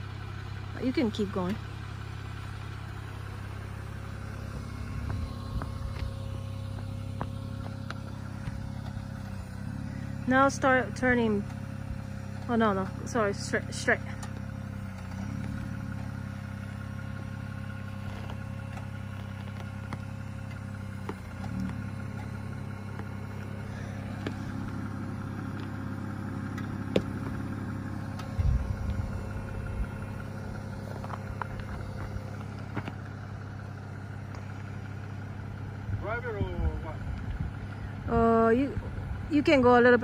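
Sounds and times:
engine running at low revs: 0.0s - 40.0s
sharp knocks and clunks: 26.6s - 27.3s.

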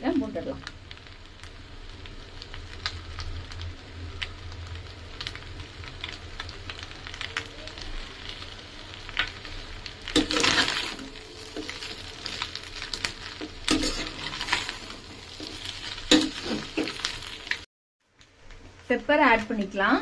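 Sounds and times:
light frying sizzle: 0.0s - 20.0s
metal spatula scraping a pan: 10.1s - 17.1s.

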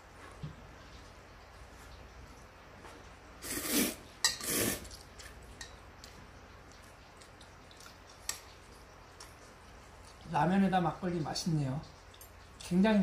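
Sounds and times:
slurping noodles: 3.4s - 5.0s.

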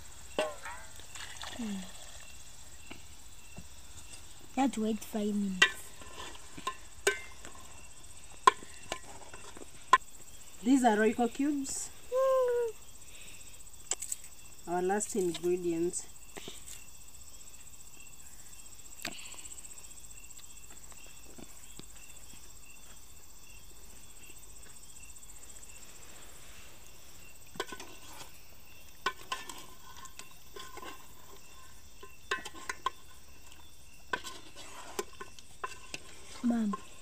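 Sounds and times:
insects chirring: 0.0s - 37.0s
metal spoon scraping a pot: 34.1s - 37.0s.

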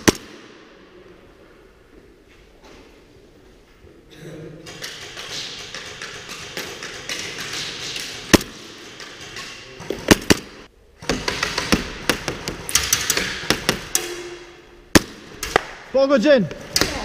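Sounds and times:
airsoft gun shots: 0.0s - 0.5s.

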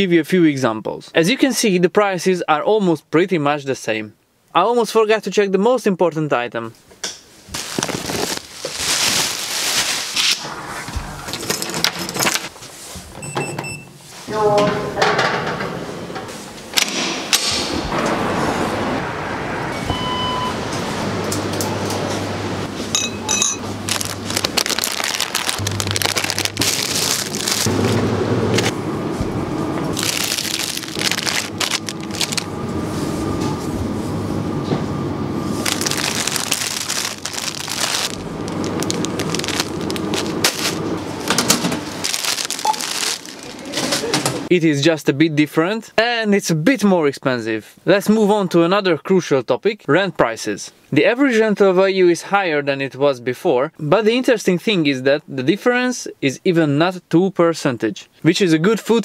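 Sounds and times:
steady background hum: 6.2s - 57.0s
rustling: 7.4s - 13.2s, 35.6s - 40.8s, 42.0s - 43.9s
plastic packaging crinkling: 7.5s - 10.4s, 23.8s - 27.7s, 29.9s - 32.6s, 35.6s - 44.0s.

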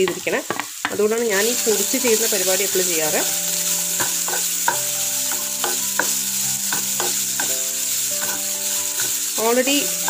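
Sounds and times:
oil sizzling: 0.0s - 10.0s
wooden spatula scraping a pan: 1.5s - 10.0s.

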